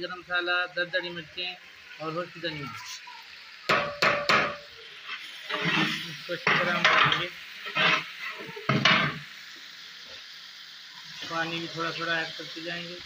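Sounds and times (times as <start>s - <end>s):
onions sizzling in oil: 0.0s - 13.0s
metal spatula scraping a pot: 4.5s - 9.2s.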